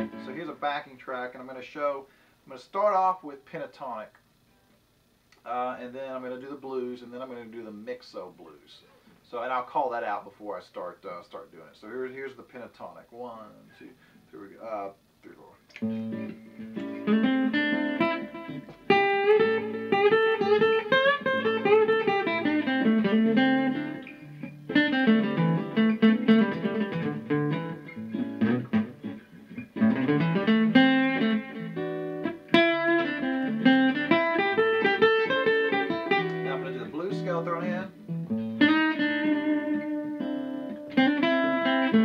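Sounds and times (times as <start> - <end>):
acoustic guitar solo: 0.0 - 0.8, 15.8 - 42.0.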